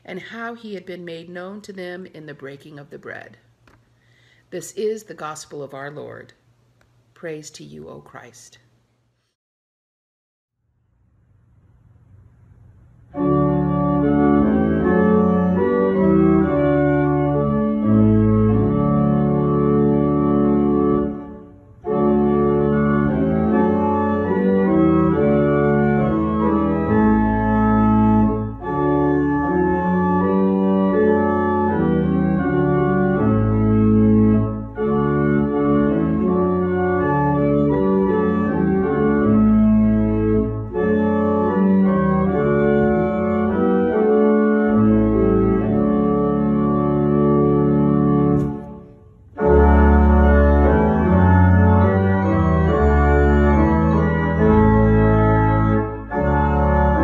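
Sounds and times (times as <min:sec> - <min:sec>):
low organ pedal bass: 0:12.1 - 0:57.0
church organ chords: 0:12.8 - 0:57.0.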